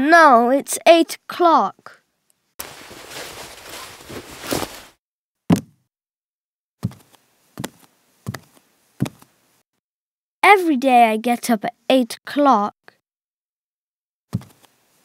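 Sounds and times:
bedclothes swishing: 2.6 - 5.0
footsteps: 2.6 - 5.0.

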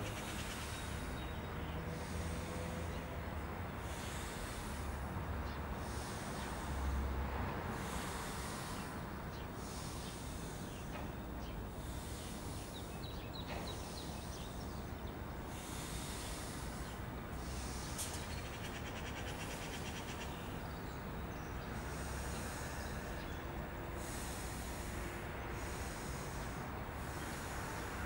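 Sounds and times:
steady background hiss: 0.0 - 28.0
man breathing forcefully: 1.9 - 18.5, 21.6 - 28.0.

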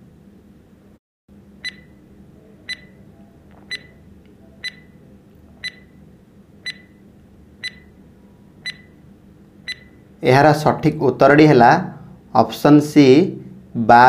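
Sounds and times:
faint steady hum: 0.0 - 14.0
ticking countdown beep: 1.6 - 2.0, 2.7 - 3.0, 3.7 - 3.9, 4.6 - 4.9, 5.6 - 5.9, 6.6 - 7.0, 7.6 - 7.9, 8.6 - 9.0, 9.7 - 10.0.

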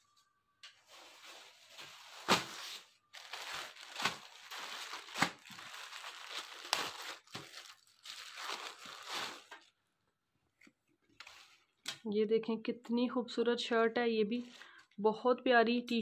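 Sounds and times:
plastic bags crinkling and rustling: 0.7 - 9.8, 14.3 - 15.0.

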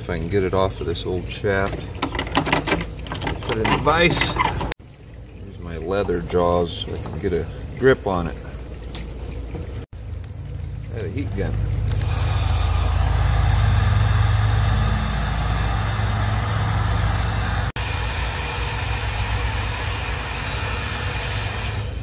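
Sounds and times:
heat gun blowing air: 11.9 - 22.0.

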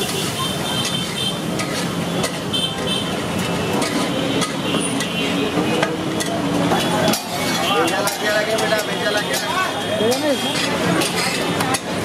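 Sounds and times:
metal spatula scraping griddle: 0.0 - 2.4, 3.7 - 5.2, 10.1 - 12.0
traffic hum: 0.0 - 12.0
murmur of voices: 2.2 - 12.0.

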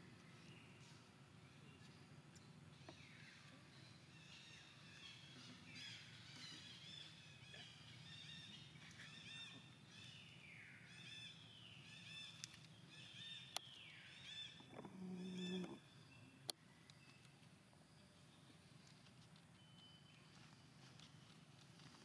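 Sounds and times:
high-pitched animal calls: 14.3 - 15.9.

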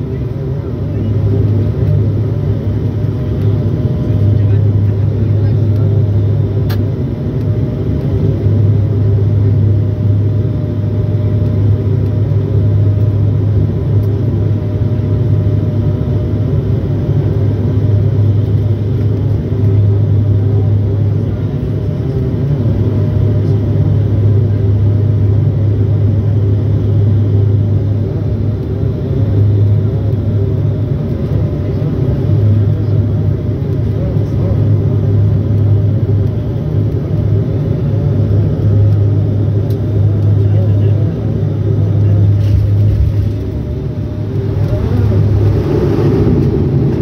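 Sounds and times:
propeller drone: 0.0 - 47.0
rush of airflow: 42.3 - 47.0.

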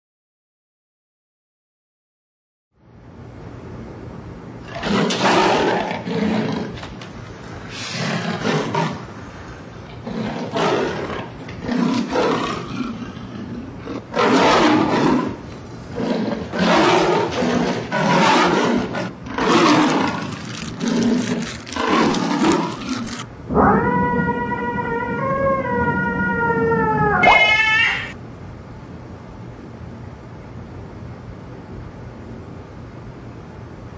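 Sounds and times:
cat growling and yowling: 13.9 - 15.4, 16.0 - 28.2.

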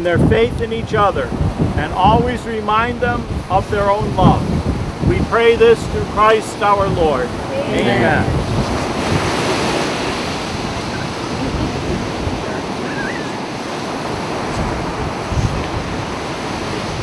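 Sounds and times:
wind buffeting microphone: 0.0 - 17.0
surf breaking on beach: 0.9 - 17.0.

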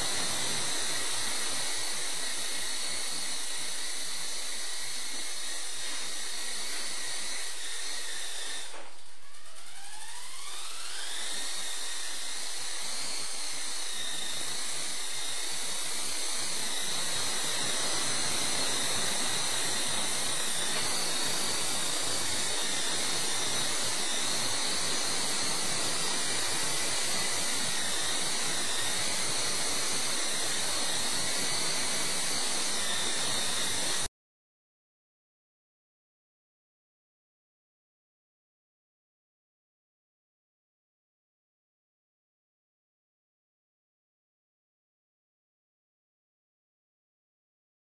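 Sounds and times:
toy helicopter motor whine: 0.0 - 34.1.

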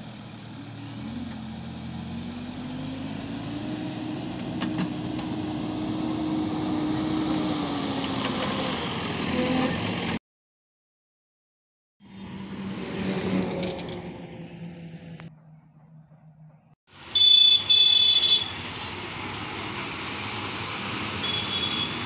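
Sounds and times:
engine running: 0.0 - 10.2
traffic noise: 0.0 - 10.2, 12.0 - 22.0
high-pitched vehicle horn blasts: 17.2 - 18.6, 21.2 - 22.0.

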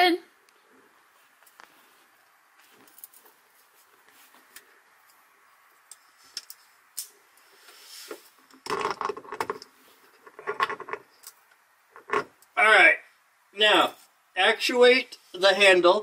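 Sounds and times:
hardware and tools clicking: 8.1 - 12.6.

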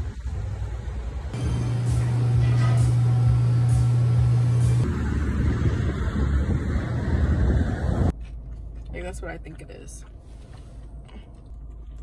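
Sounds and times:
broad rumble: 0.0 - 8.2
vehicle engine hum: 0.0 - 12.0.

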